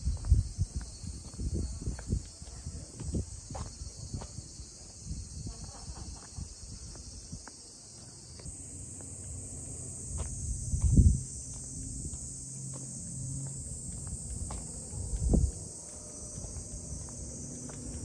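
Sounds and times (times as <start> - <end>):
wind rumble on microphone: 0.0 - 7.5, 9.9 - 18.0
footsteps: 10.1 - 18.0.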